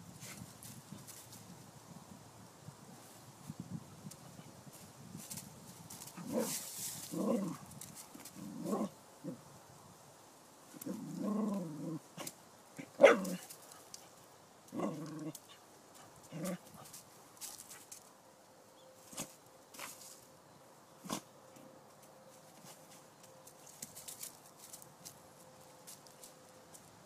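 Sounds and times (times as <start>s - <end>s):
dog barking: 13.0s - 13.4s.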